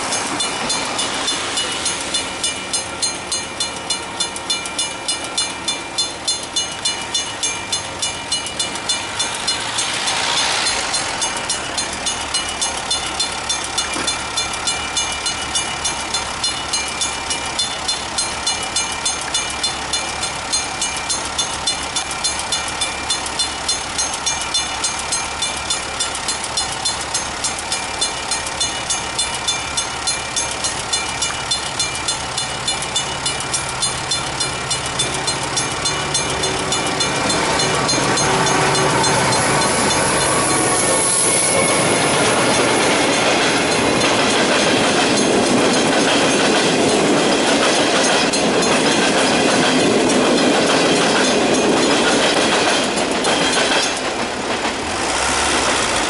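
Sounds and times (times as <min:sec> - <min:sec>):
passing hiss: 0:08.9 - 0:12.5.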